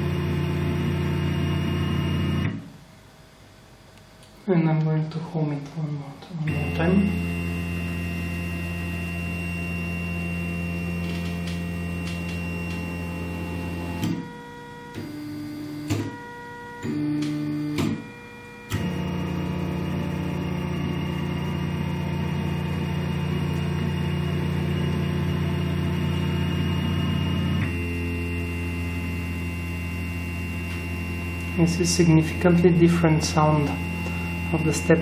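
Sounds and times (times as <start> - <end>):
stepper motor whine: 0.0 - 2.7, 6.5 - 35.0
steady low hum: 0.0 - 35.0.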